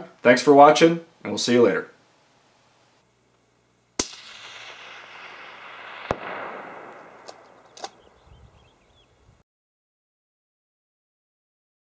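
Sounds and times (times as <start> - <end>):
sharp gunshot cracks: 4.0 - 8.2
rifle shot with rolling echo: 4.0 - 9.0.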